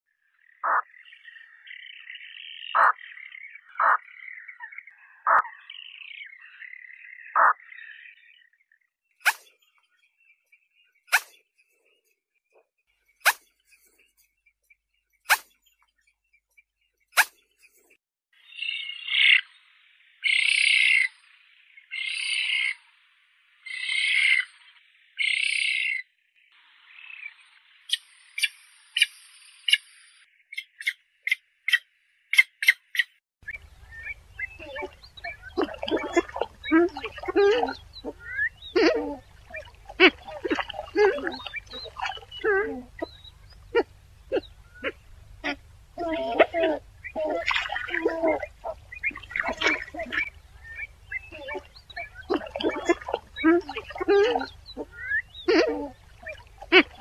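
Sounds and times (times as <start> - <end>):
high-pitched bird chatter: 2.7 - 3.0, 3.7 - 5.8, 30.6 - 57.0
spoonbill calls: 2.7 - 3.0, 3.7 - 5.7, 30.5 - 57.0.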